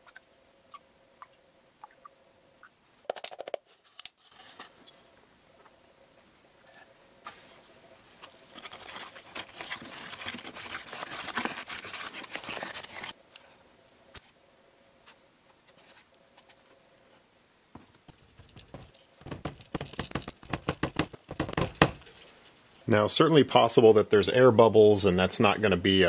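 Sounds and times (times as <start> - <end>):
plaster mixing in plastic cup: 8.2 - 13.1
cup pounded on bench: 18.7 - 22.0.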